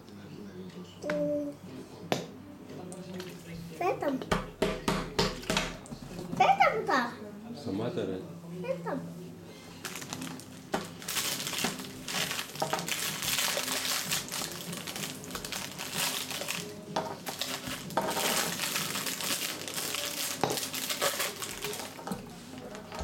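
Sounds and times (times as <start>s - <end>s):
plastic bottle crinkling: 9.8s - 23.0s.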